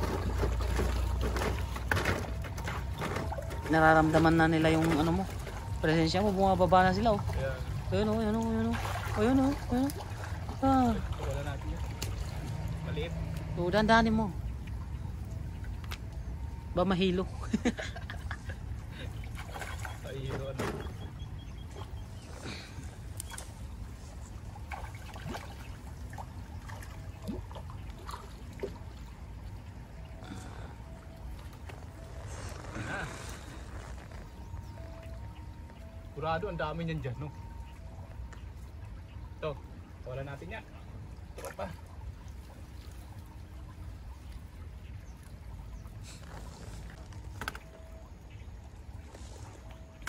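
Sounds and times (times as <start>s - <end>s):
stream flowing over stones: 0.0s - 17.2s
stream trickling over stones: 0.0s - 17.3s, 18.6s - 50.0s
water splashes and drips: 0.0s - 50.0s.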